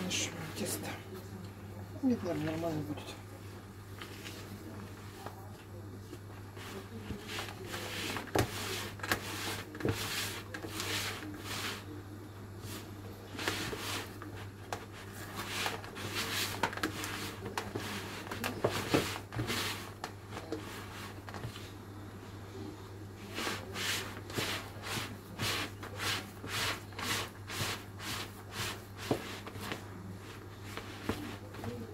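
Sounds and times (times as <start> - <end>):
dough being stirred in a bowl: 2.0 - 12.0, 12.6 - 21.8, 23.2 - 31.9.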